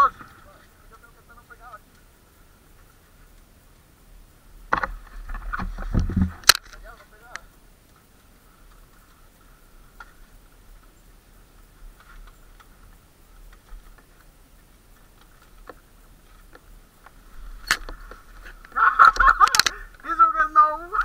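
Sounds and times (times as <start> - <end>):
dirt bike rattling on rocks: 4.7 - 8.1, 9.9 - 21.0.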